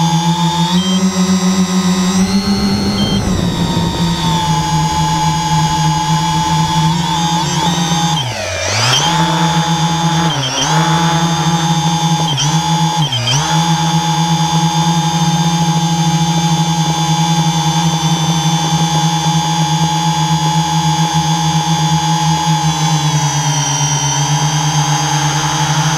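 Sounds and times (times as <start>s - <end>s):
drone motors whining: 0.0s - 14.6s, 22.5s - 25.9s.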